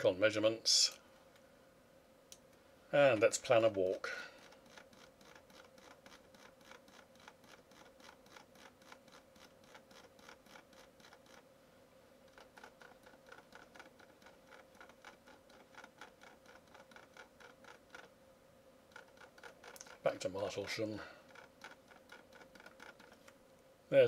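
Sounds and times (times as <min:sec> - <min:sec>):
faint steady hum: 0:00.0 - 0:24.0
mouse scroll wheel clicking: 0:04.4 - 0:11.4, 0:12.3 - 0:18.1, 0:18.9 - 0:20.5, 0:21.3 - 0:23.4.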